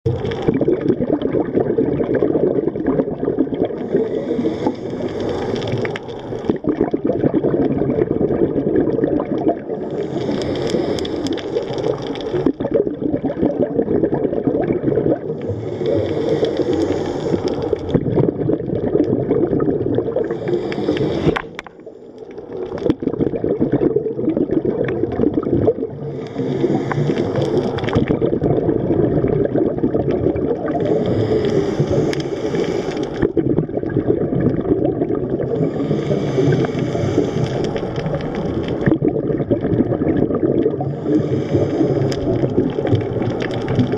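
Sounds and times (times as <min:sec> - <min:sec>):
bubbles gurgling underwater: 0:00.0 - 0:43.9
diver breathing through regulator: 0:03.6 - 0:06.6, 0:09.7 - 0:12.5, 0:15.3 - 0:18.0, 0:20.1 - 0:22.6, 0:25.8 - 0:28.1, 0:30.7 - 0:33.4, 0:35.4 - 0:38.9, 0:40.8 - 0:43.9.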